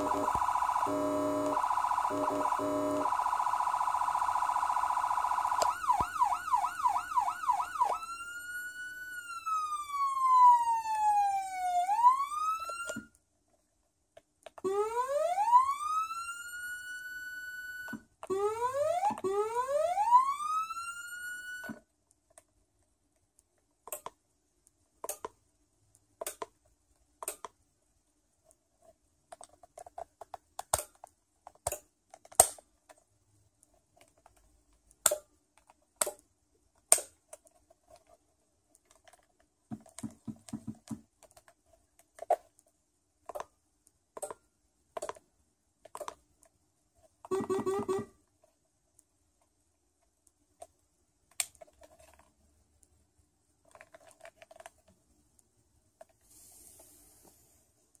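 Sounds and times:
electronic siren sweeping: 0.0 - 13.1, 14.6 - 21.8, 47.3 - 48.1.

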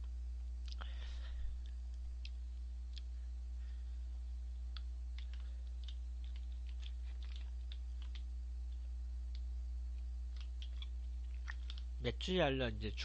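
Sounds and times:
low electrical hum: 0.0 - 13.0
person eating: 4.7 - 8.2, 10.3 - 11.9.

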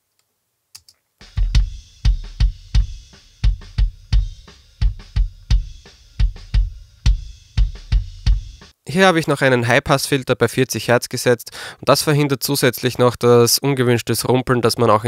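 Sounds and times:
kick drum hits in rock beat: 1.2 - 8.7
snare and cymbal bleed: 1.2 - 8.8.

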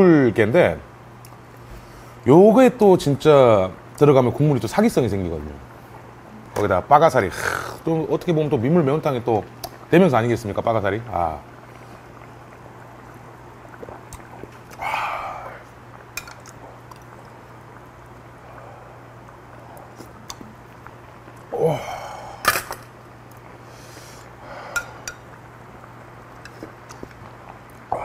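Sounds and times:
steady low hum: 0.0 - 28.0
person sighing ahh: 14.8 - 15.6, 21.5 - 22.7
falling vocal exclamation: 21.5 - 22.4.

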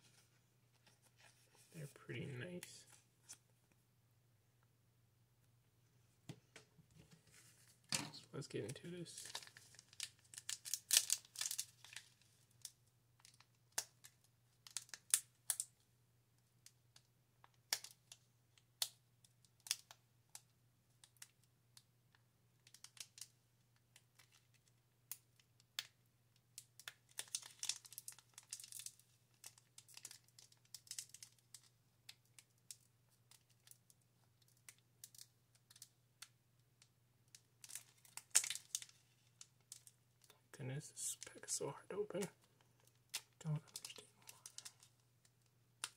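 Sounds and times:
foil wrapper crinkling and tearing: 9.2 - 12.3, 26.8 - 31.7, 37.6 - 39.9.

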